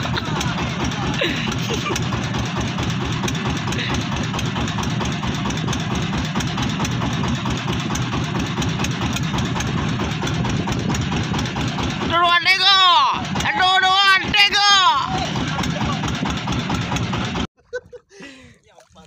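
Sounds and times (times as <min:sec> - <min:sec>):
boat engine idling: 0:00.0 - 0:18.9.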